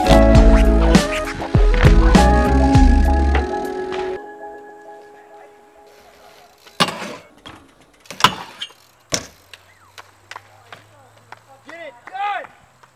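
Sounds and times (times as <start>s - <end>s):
background music: 0.0s - 6.2s
bike clacking on concrete: 6.1s - 12.9s.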